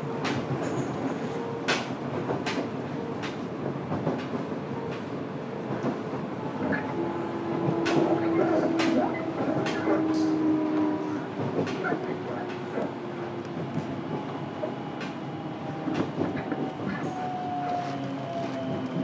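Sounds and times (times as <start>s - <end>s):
train rumble: 0.0s - 19.0s.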